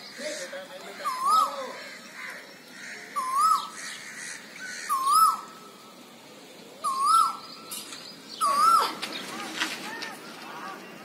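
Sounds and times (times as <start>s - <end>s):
koel calling: 0.1s - 5.6s, 8.4s - 9.0s.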